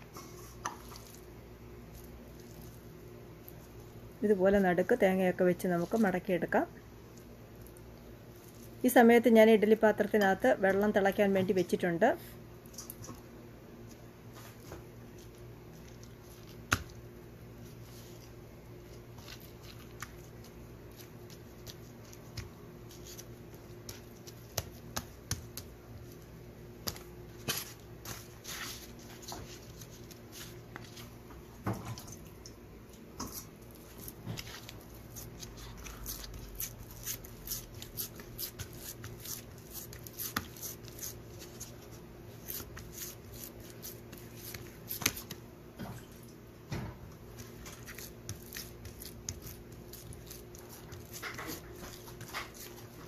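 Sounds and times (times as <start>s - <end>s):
fingers patting dough: 14.6s - 17.1s, 18.1s - 28.2s, 33.2s - 45.5s, 47.2s - 53.0s.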